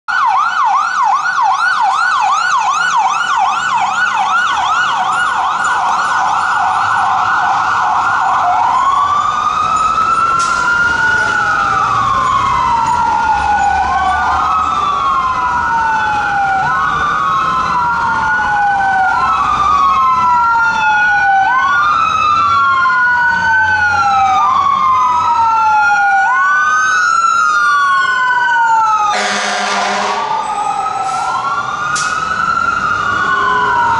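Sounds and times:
fire truck siren: 0.1 - 33.9
second siren wailing: 0.1 - 33.9
short horn blast: 29.2 - 30.3.

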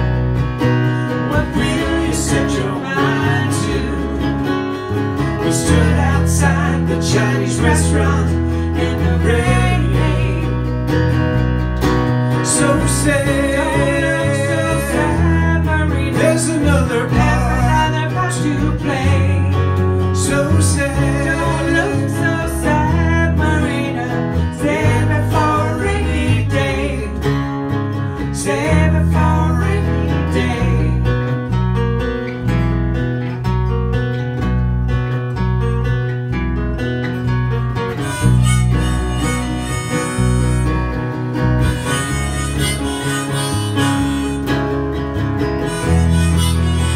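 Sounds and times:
acoustic guitar strumming: 0.0 - 46.9
harmonica melody: 37.8 - 46.9.

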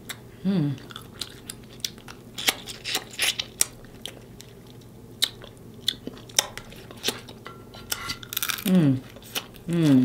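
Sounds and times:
chewing crab meat with clicks: 0.8 - 7.4.

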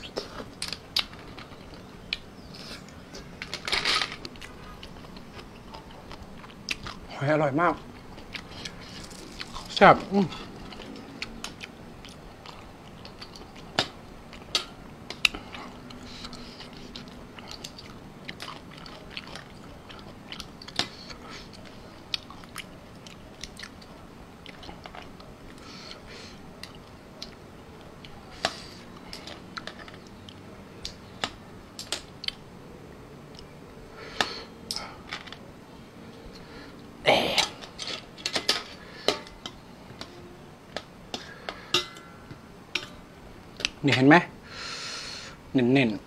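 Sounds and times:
close chewing: 0.0 - 32.4.

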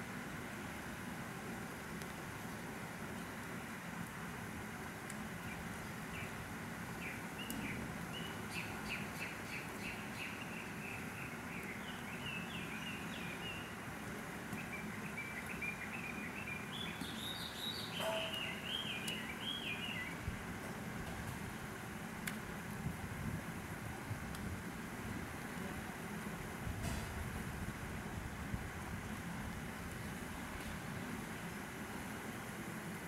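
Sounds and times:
steady background hiss: 0.0 - 33.0
songbird chirping: 7.0 - 13.8, 14.5 - 20.2.

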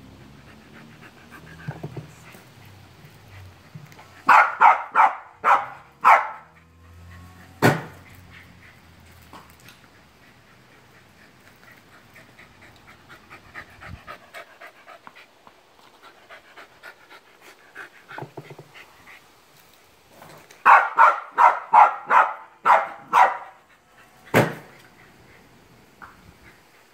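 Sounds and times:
dog panting: 0.0 - 4.4, 6.4 - 19.6, 23.2 - 26.9
dog barking: 4.2 - 6.5, 20.6 - 23.6
ball launcher firing crack: 7.6 - 8.0, 24.3 - 24.7.

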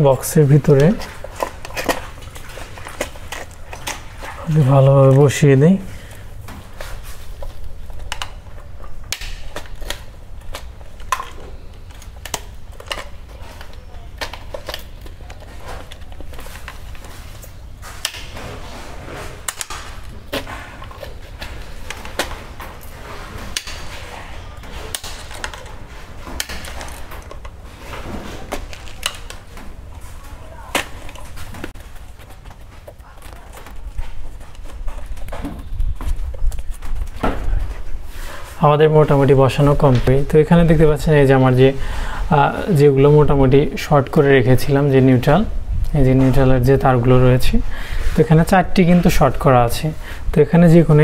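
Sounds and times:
plastic and wire clicks and rustles: 0.0 - 5.4, 6.0 - 40.2.

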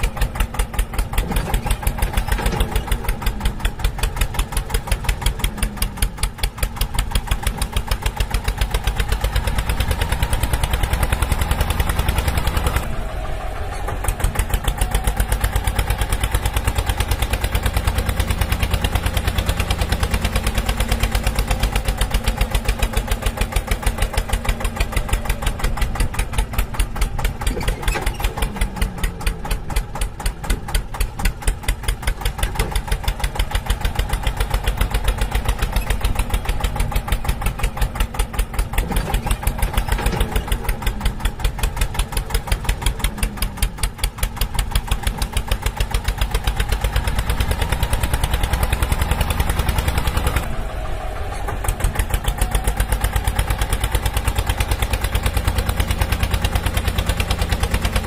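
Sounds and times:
tractor engine idling: 0.0 - 58.0.

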